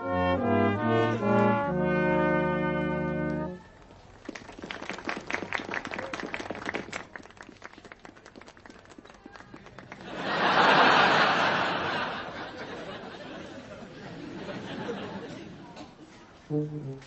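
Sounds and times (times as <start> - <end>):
brass band chord: 0.0 - 3.6
audience applause: 4.2 - 13.1.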